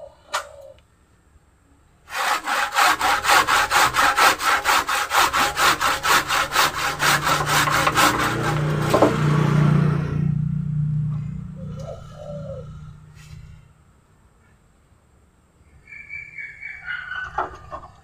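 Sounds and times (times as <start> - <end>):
handsaw cutting branch: 2.1 - 9.5.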